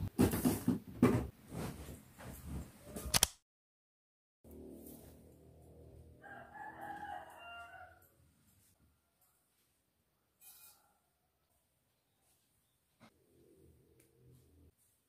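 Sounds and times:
rooster crowing: 6.2s - 8.2s.

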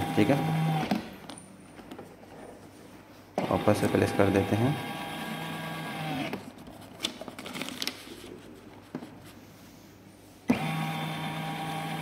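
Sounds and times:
chart printer humming: 0.0s - 1.0s, 3.4s - 6.4s, 10.5s - 12.0s
light clicks and paper handling: 6.9s - 9.2s.

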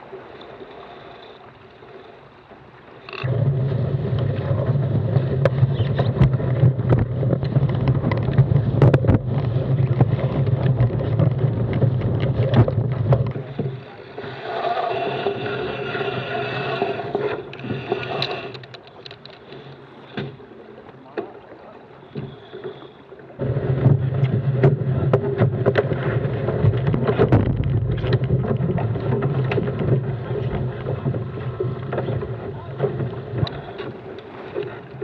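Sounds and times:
water rushing along a hull: 0.0s - 35.0s
water slapping the hull: 0.0s - 35.0s
wind buffeting microphone: 3.2s - 18.4s, 23.4s - 35.0s.

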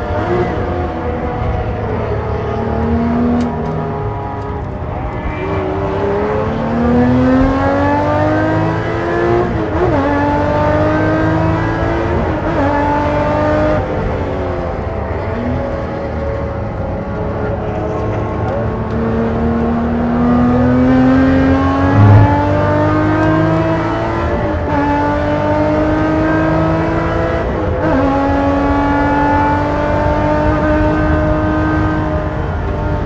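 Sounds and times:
race car engine accelerating: 18.0s - 33.0s.

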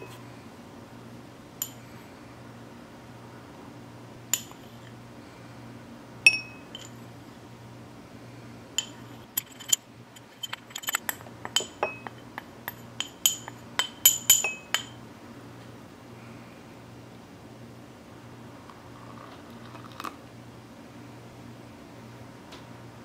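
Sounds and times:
spoon clinking glass and bowl: 1.6s - 1.8s, 4.4s - 4.9s, 6.3s - 7.0s, 8.8s - 9.8s, 10.4s - 15.0s.

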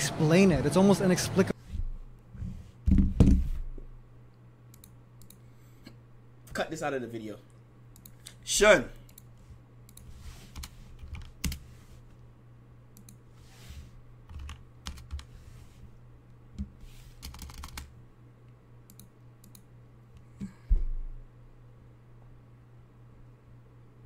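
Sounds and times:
low steady hum: 0.0s - 24.0s
keyboard keystrokes and clicks: 14.3s - 15.3s, 16.6s - 17.9s.

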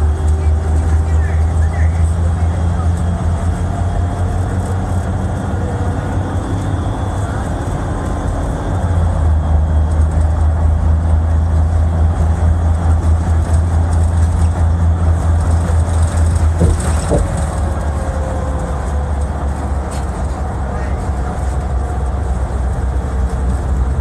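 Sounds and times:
road and engine drone: 0.0s - 24.0s
short knocks: 16.6s - 17.4s.

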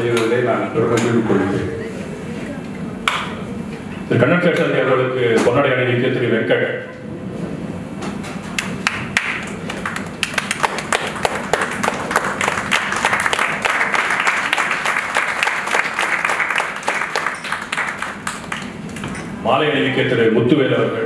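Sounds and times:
audience applause: 8.8s - 18.8s.

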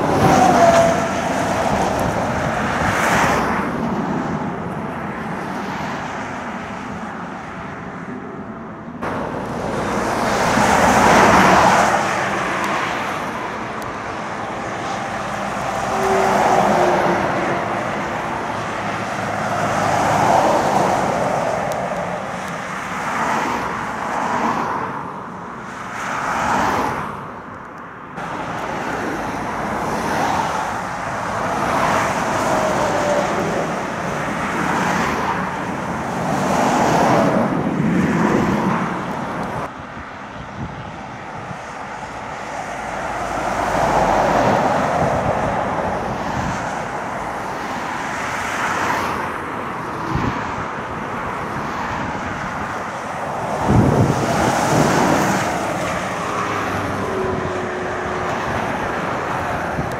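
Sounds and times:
wind buffeting microphone: 0.0s - 5.4s, 29.3s - 47.6s, 49.5s - 59.9s
lorries and cars passing: 0.0s - 59.9s.

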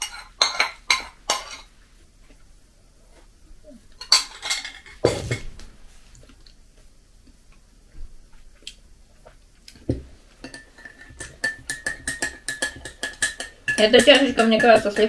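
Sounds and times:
teaspoon clinking in glass mug: 10.4s - 15.0s.

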